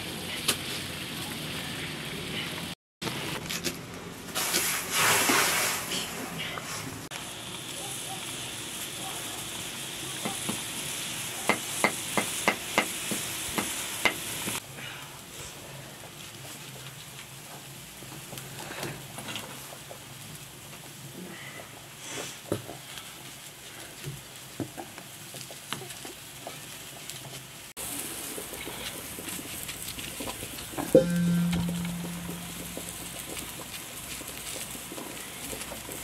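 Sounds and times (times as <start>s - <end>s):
wood fire crackling: 0.0s - 6.0s, 7.1s - 36.0s
chicken sizzling in pot: 4.2s - 6.0s, 7.1s - 14.6s, 15.6s - 36.0s.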